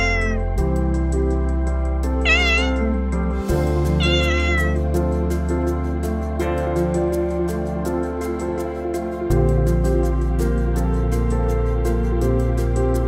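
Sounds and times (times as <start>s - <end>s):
cat meowing: 0.0s - 0.6s, 2.2s - 3.0s, 3.9s - 4.8s
soft background music with beat: 0.0s - 13.0s.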